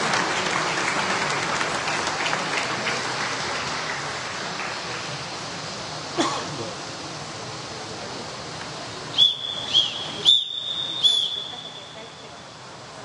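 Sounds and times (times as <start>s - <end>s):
pool hall background noise: 0.0s - 13.0s
whistle blasts: 9.1s - 12.1s.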